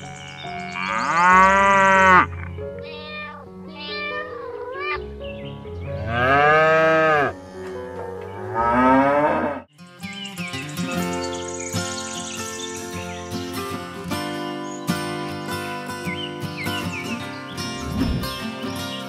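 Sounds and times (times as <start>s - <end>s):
soft background music: 0.0s - 9.3s
cow mooing: 0.7s - 2.4s, 5.9s - 9.7s
cat meowing: 2.7s - 5.0s.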